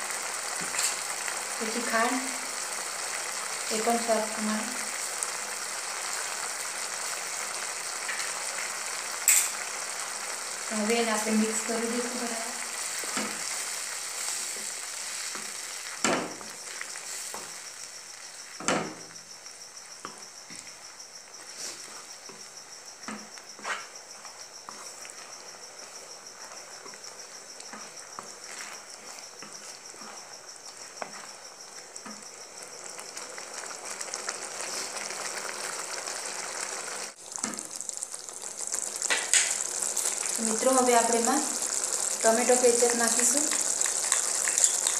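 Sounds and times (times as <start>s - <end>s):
sauce sizzling in a pan: 0.0s - 44.9s
spatula scraping a pan: 23.1s - 31.3s.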